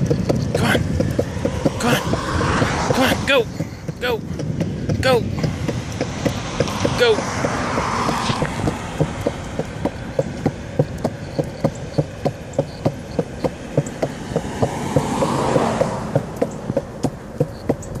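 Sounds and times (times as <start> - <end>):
skateboard wheels clicking: 0.0 - 18.0
skateboard wheels rolling on concrete: 0.0 - 18.0.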